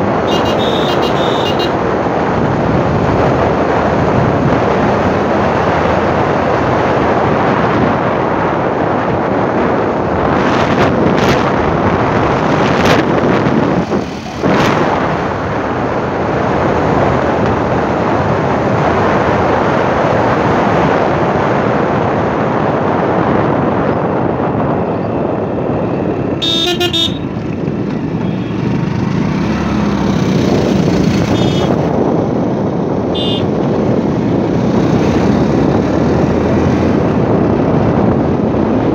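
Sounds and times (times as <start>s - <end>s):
motorcycle road noise: 0.0s - 38.9s
wind rush: 0.0s - 38.9s
vehicle horn honking: 0.3s - 1.8s, 26.4s - 27.3s, 31.3s - 31.8s, 33.1s - 33.5s.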